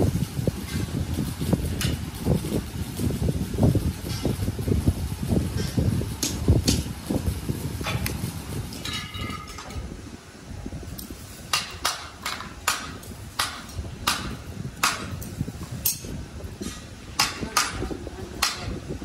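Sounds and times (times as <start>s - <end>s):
steady low rumble: 0.0s - 19.0s
hammer striking metal: 11.5s - 18.8s.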